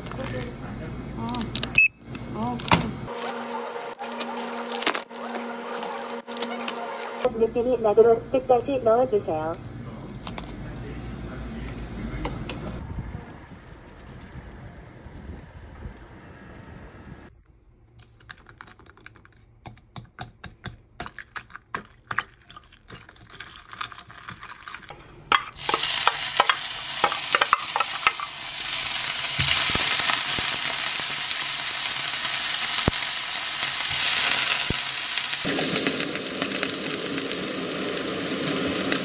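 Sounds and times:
garlic sizzling in oil: 25.5s - 39.0s.

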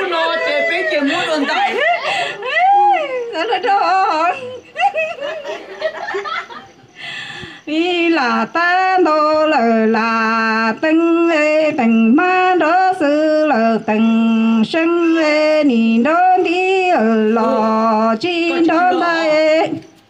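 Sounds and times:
person singing unaccompanied: 7.6s - 20.0s.

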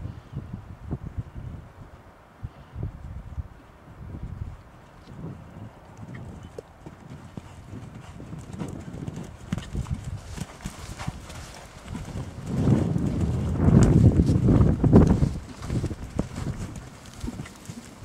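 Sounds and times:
horse hoofbeats on dirt: 5.2s - 18.0s.

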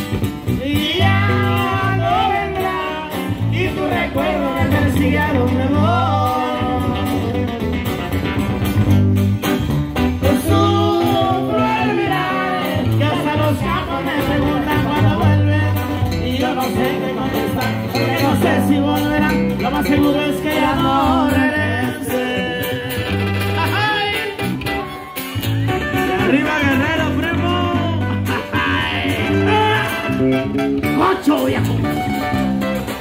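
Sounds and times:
electric bass: 0.0s - 33.0s
strummed guitar: 0.0s - 33.0s
man singing: 0.4s - 7.8s, 10.2s - 24.7s, 25.4s - 32.0s
tuba: 25.6s - 33.0s.

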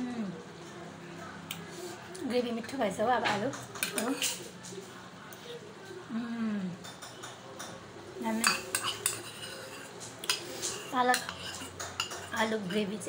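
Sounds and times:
spoon scraping ceramic bowl: 3.8s - 4.5s, 8.3s - 13.0s.

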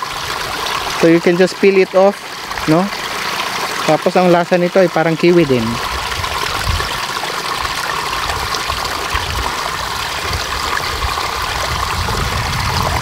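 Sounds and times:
rushing outdoor noise: 0.0s - 13.0s
low rumbles: 10.3s - 13.0s.

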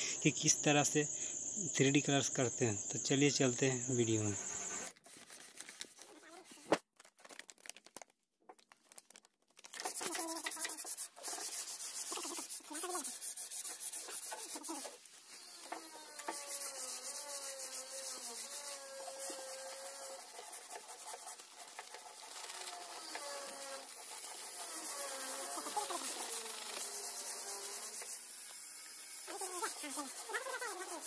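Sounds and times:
foil and plastic packets crinkling: 4.9s - 10.4s
powder shaken into cup: 4.9s - 14.9s.

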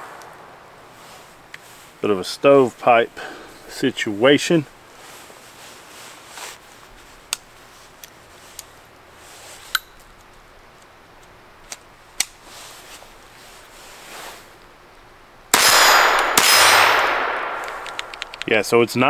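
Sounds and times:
gunshot with ringing tail: 15.6s - 18.0s
pistol action metallic clicks: 17.6s - 18.5s.

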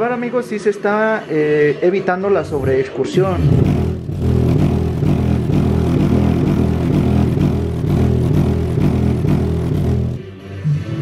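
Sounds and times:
subwoofer playing bass line: 3.2s - 10.4s.

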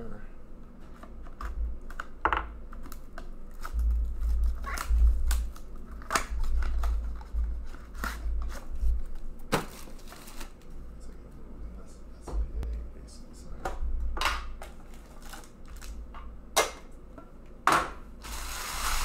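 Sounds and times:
plastic wrapping crinkling and tearing: 2.8s - 10.7s, 14.7s - 16.0s.

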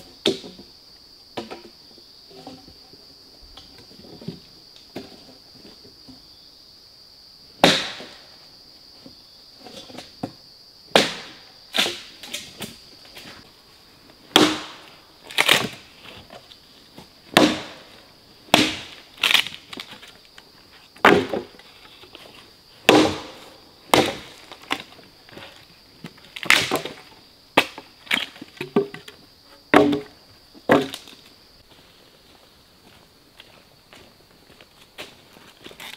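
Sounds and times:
hatchet chopping wood: 7.6s - 8.1s, 11.0s - 12.1s, 14.3s - 14.8s, 17.4s - 17.8s, 18.5s - 18.9s, 22.9s - 24.3s
wood cracking and splintering: 14.3s - 16.3s, 18.5s - 20.1s, 26.2s - 27.0s.

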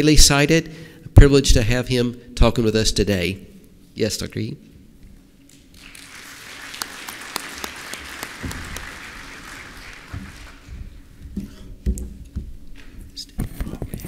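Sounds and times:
audience applauding: 5.7s - 11.1s
low thumps and knocks: 10.2s - 13.0s.

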